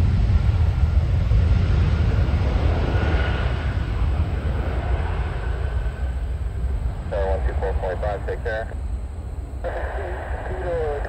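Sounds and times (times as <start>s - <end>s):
jet engines rumbling: 0.0s - 11.0s
faint thin whine: 3.3s - 11.0s.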